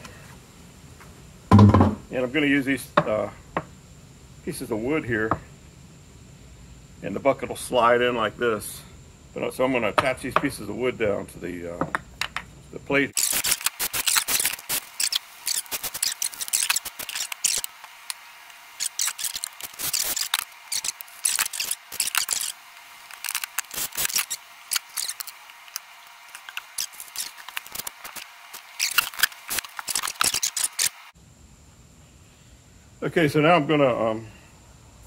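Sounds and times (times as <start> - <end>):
rapid clicking and rattling: 18.8 - 22.6.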